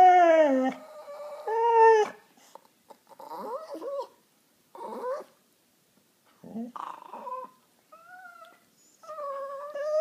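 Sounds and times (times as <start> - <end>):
dog whining: 0.0 - 2.2, 3.0 - 5.4, 6.4 - 10.0.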